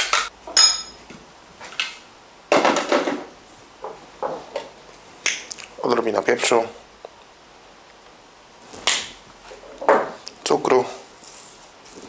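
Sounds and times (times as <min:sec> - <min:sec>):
metal spoon clinking: 0:00.6 - 0:01.0.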